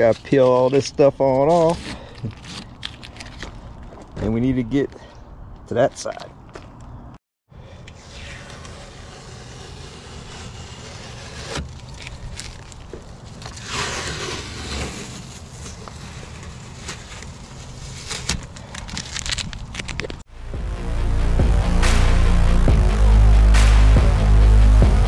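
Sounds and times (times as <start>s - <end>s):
tape peeling with tearing crackles: 0.0s - 3.7s, 8.0s - 20.2s.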